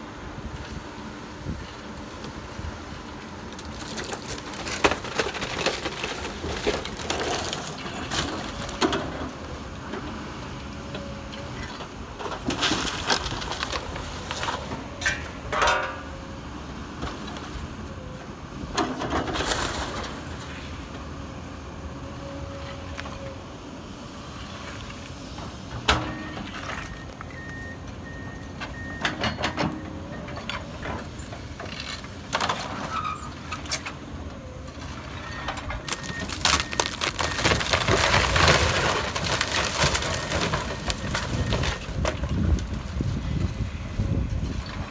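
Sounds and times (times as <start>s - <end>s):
excavator diesel engine running: 0.0s - 44.9s
wood cracking and debris crashing: 3.5s - 9.6s, 12.2s - 15.3s, 18.8s - 20.3s, 35.0s - 43.5s.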